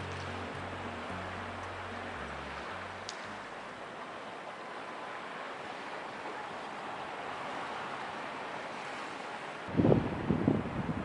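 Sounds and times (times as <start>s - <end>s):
low background music: 0.0s - 4.1s
sea surf: 0.0s - 11.0s
wind: 0.0s - 11.0s.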